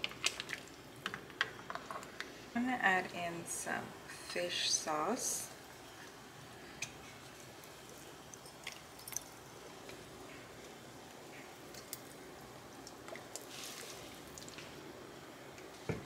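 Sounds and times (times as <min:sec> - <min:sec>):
liquid trickling: 0:07.7 - 0:09.9, 0:12.7 - 0:14.8.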